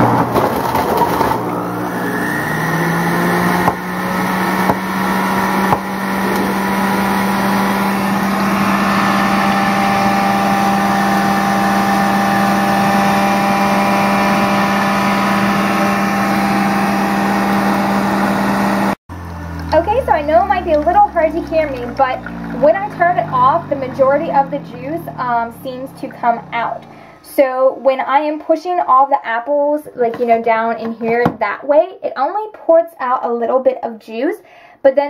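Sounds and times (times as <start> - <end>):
juice extractor motor running: 0.0 - 27.4.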